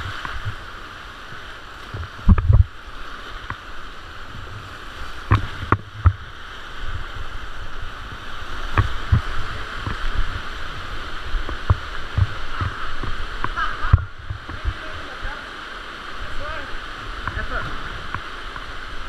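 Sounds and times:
paddle strokes knocking and splashing: 0:00.0 - 0:15.2
rushing whitewater river: 0:00.0 - 0:19.0
kayak hull bumping rocks: 0:01.8 - 0:02.8, 0:05.1 - 0:06.3, 0:08.6 - 0:10.4, 0:11.3 - 0:15.0.

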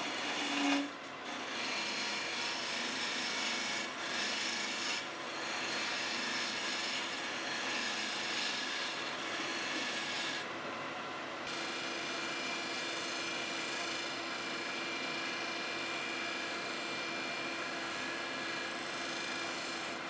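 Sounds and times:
lathe gouge scraping wood: 0:00.0 - 0:10.4, 0:17.9 - 0:20.0.

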